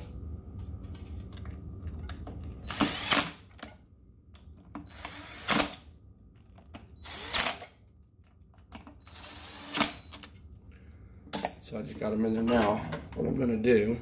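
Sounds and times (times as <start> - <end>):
cordless drill driving bolts: 2.7 - 3.4, 4.9 - 5.8, 7.0 - 7.7, 9.0 - 10.2.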